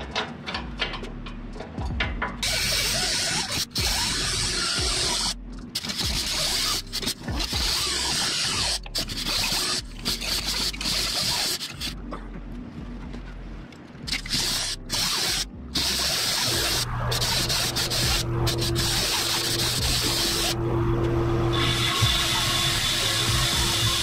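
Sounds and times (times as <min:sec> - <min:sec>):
hand tools scraping on metal: 0:02.4 - 0:12.0, 0:14.1 - 0:20.6
steady low hum: 0:11.7 - 0:24.0.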